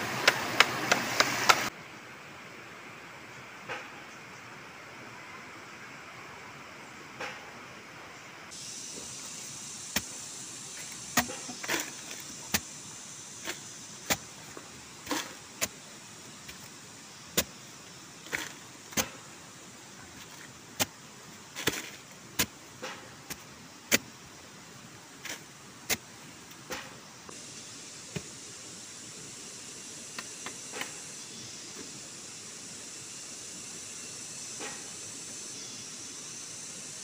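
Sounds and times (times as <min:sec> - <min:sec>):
steady high hiss: 0:00.0 - 0:37.0
digging tool striking soil: 0:08.9 - 0:19.4, 0:20.2 - 0:24.2, 0:25.2 - 0:27.0.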